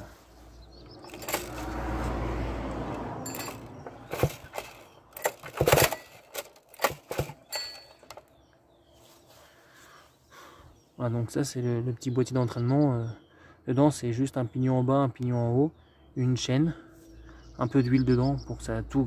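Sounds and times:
metallic clinks and knocks: 1.0 - 1.6, 3.2 - 8.3.

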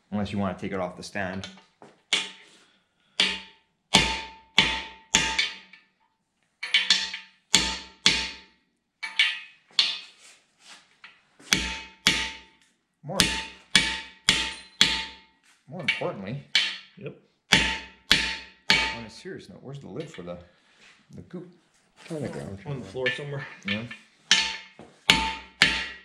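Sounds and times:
hammer striking metal socket: 6.6 - 8.4, 9.0 - 10.0
metallic ringing tone: 14.4 - 16.9.

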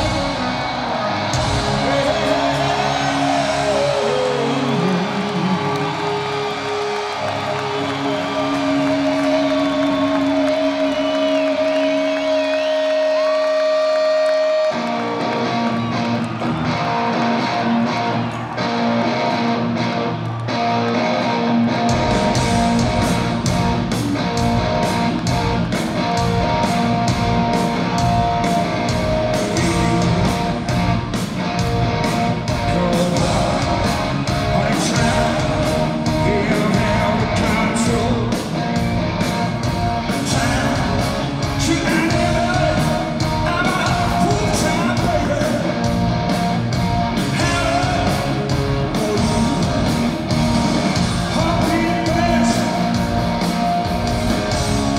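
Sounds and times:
electric guitar riff: 0.0 - 54.9
live rock band playing: 0.0 - 54.9
man singing: 1.7 - 5.5, 29.4 - 30.6, 32.6 - 38.4, 40.1 - 45.8, 47.2 - 50.1, 51.2 - 52.8.

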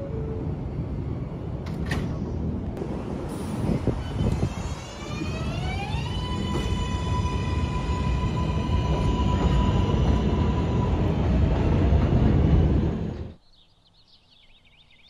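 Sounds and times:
subway train rumbling: 0.0 - 13.4
traction motors whining: 3.7 - 11.6.

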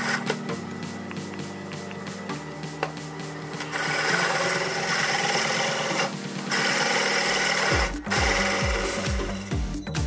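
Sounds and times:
drill press cutting steel: 3.6 - 9.5.

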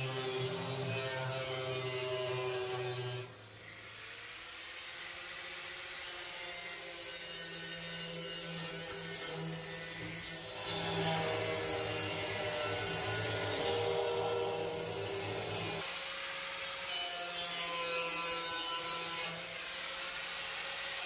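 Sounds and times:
angle grinder cutting steel: 0.0 - 16.2.

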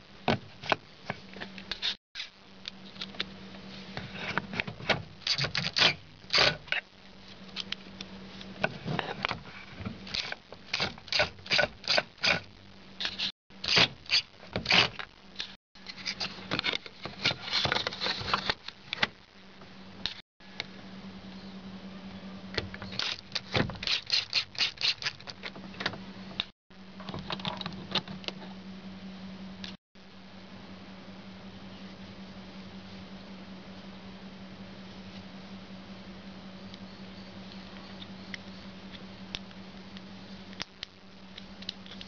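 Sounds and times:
faint steady hum: 0.0 - 42.0
screwdriver turning a screw: 23.0 - 25.2.

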